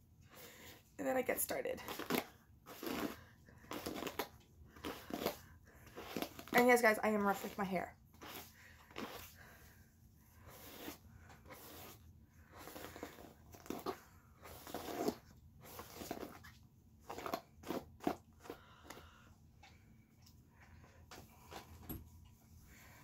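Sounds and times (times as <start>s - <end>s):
hairbrush through wet hair: 1.3s - 9.4s, 10.4s - 18.5s.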